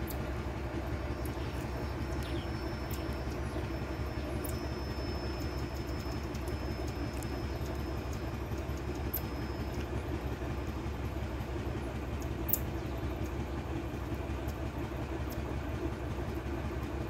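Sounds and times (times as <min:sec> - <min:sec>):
low mechanical rumble: 0:00.0 - 0:17.0.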